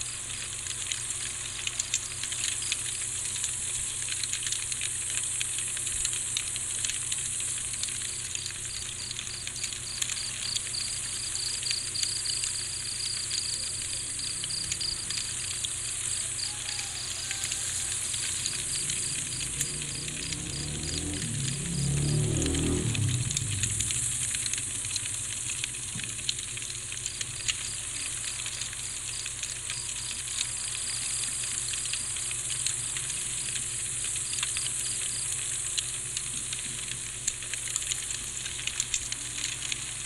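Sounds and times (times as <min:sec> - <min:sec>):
fine crackle: 0:00.0 - 0:40.0
crickets chirping: 0:07.1 - 0:25.7.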